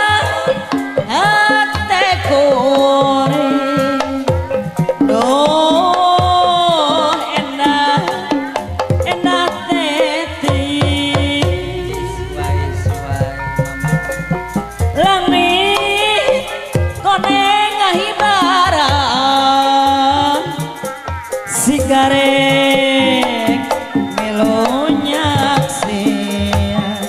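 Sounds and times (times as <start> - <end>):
woman singing: 0.0 - 4.3, 5.1 - 13.4, 15.0 - 20.8, 21.5 - 27.0
gamelan accompaniment: 11.1 - 17.3.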